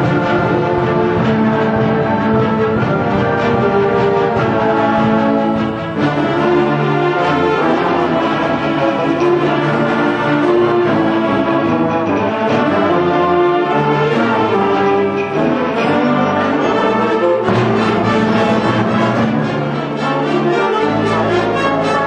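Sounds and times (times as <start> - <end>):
orchestral music: 0.0 - 22.0.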